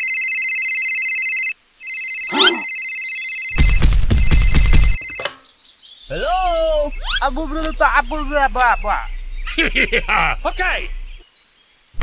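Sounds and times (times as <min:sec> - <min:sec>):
phone ringtone trilling: 0:00.0 - 0:05.4
loud noisy low-pitched burst: 0:06.4 - 0:11.2.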